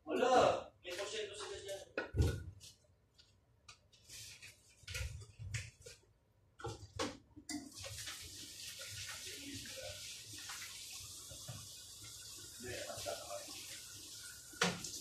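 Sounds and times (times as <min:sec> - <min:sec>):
tap water running onto dishes: 0:06.6 - 0:15.0.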